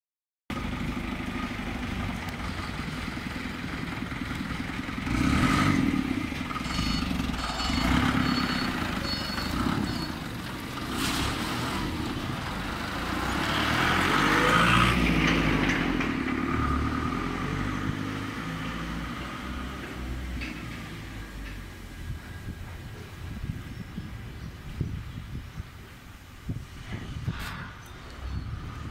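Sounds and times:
forklift engine revving: 0.5s - 20.4s
high-pitched beeps: 6.6s - 10.2s
clatter: 15.0s - 16.7s.

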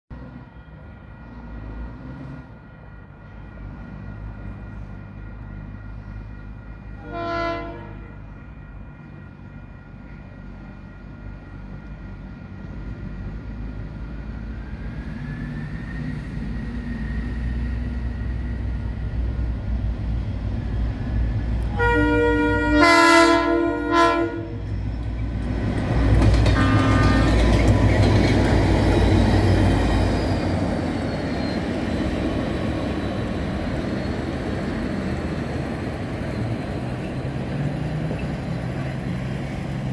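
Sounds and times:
locomotive engine rumble: 0.2s - 39.9s
locomotive horn: 7.0s - 8.3s, 21.6s - 24.7s, 26.5s - 27.6s.

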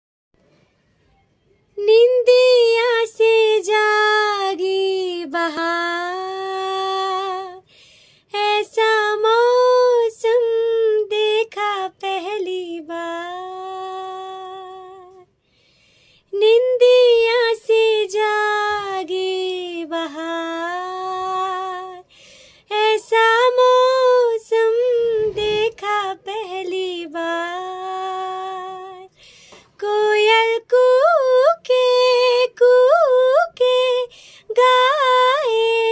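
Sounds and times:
woman singing unaccompanied: 1.7s - 7.7s, 8.3s - 15.3s, 16.3s - 35.9s
singer breathing: 7.6s - 8.3s, 15.3s - 16.3s, 22.0s - 22.7s, 29.1s - 29.8s, 34.1s - 34.5s.

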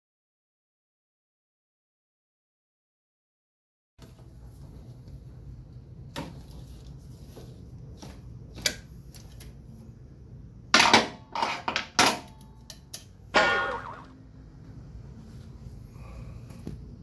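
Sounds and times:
ringing metallic clank: 13.4s - 14.2s.

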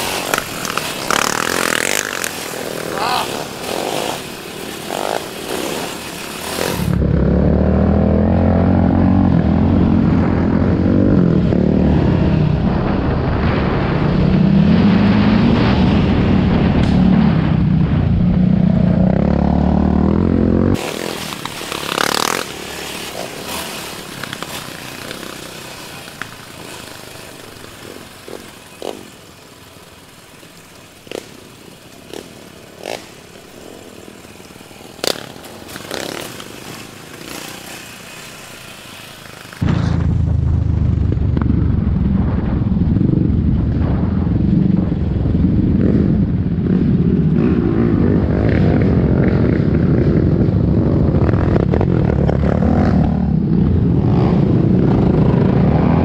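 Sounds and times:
quad engine revving: 0.0s - 12.7s, 18.3s - 41.8s, 45.7s - 56.0s
wind noise: 6.4s - 20.9s, 39.6s - 56.0s.

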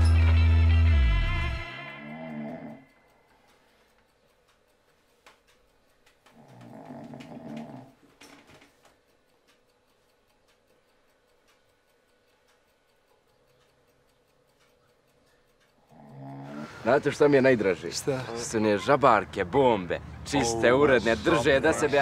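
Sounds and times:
person snoring: 1.7s - 2.9s, 6.3s - 8.0s, 15.9s - 16.9s.

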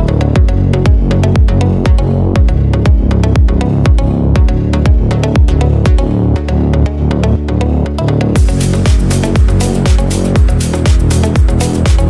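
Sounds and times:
kick drum: 0.0s - 6.4s, 8.4s - 12.0s
electronic dance music: 0.0s - 12.0s
sharp percussion hits: 8.4s - 12.0s.

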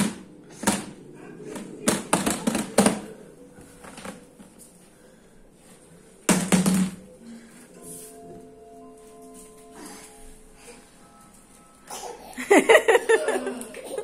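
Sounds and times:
basket banging: 6.3s - 7.1s.

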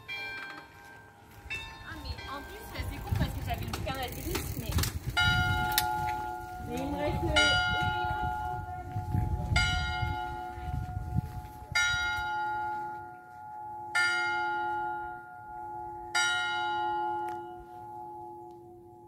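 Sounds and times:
church bell tolling: 0.0s - 3.1s, 5.2s - 19.0s.

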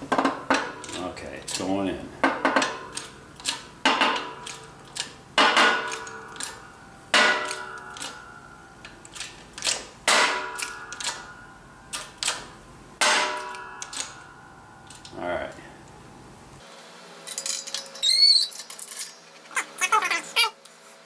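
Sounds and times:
sharp metallic clicks: 0.5s - 11.3s, 11.9s - 15.2s.

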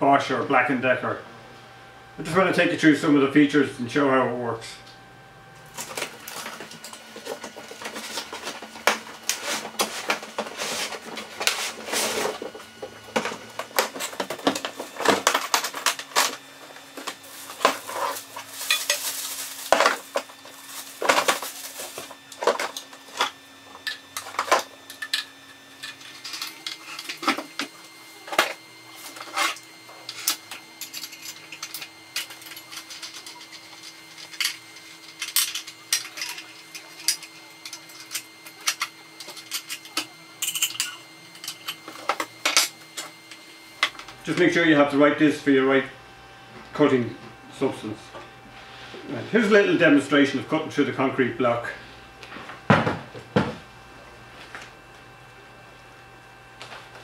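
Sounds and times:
plastic bag rustling: 5.6s - 23.3s.

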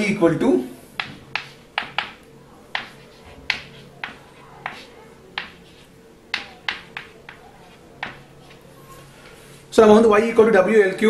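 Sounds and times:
chalk tapping on blackboard: 1.0s - 8.7s
chalk scratching: 1.0s - 9.7s.

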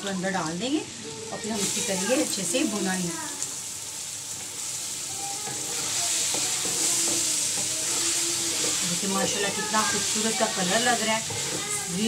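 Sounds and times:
food sizzling in hot oil: 0.0s - 12.0s
spatula scraping a pot: 5.4s - 12.0s.

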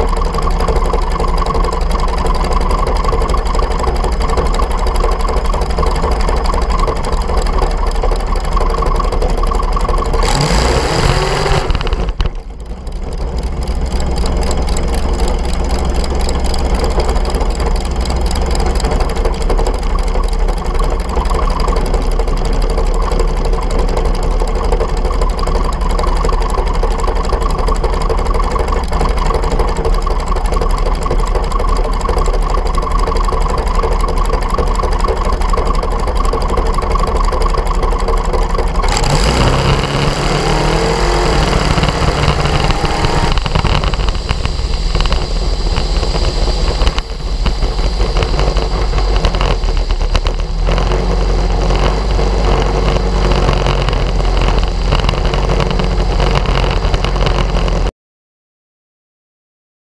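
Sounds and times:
dragster engine: 0.0s - 57.9s
wind noise: 38.9s - 57.8s.

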